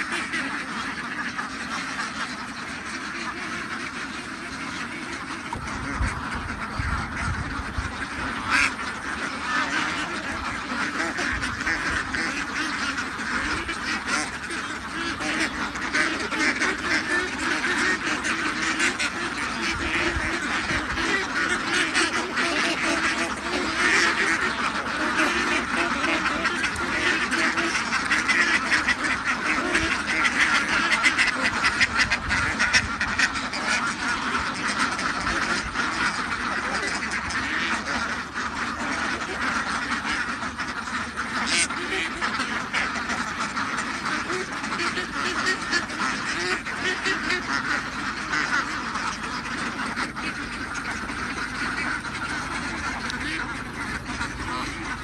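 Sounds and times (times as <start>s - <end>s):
ducks quacking: 0.0s - 55.0s.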